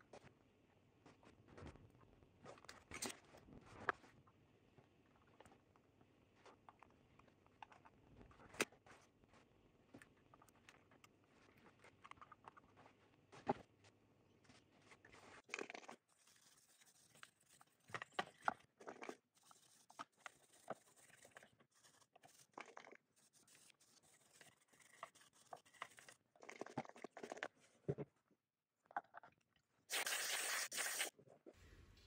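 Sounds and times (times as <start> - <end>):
brush scrubbing circuit board: 29.9 - 31.1.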